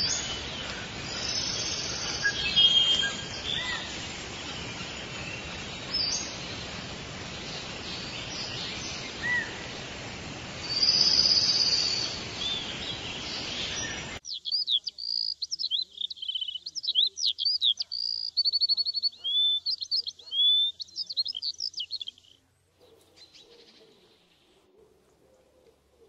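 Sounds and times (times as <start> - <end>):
bird call: 0.0 - 6.4, 10.6 - 24.2
outdoor background hiss: 0.0 - 26.0
songbird singing: 0.0 - 26.0
faint low bird calls: 10.6 - 26.0.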